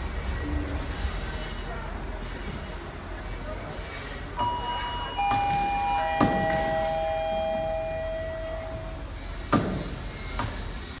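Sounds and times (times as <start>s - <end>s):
low train rumble: 0.0s - 11.0s
train wheels knocking over rail joints: 9.3s - 10.8s.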